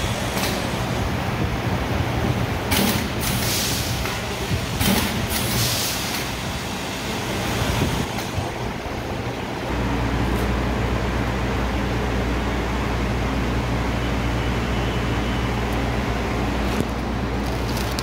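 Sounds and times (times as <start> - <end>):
compressed air hiss: 3.2 - 7.3
packing machine hum: 15.5 - 18.0.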